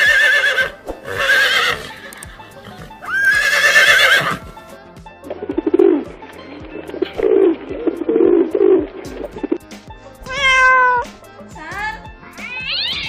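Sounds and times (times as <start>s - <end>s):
horse whinnying: 0.0s - 4.5s
background music with steady beat: 0.0s - 13.0s.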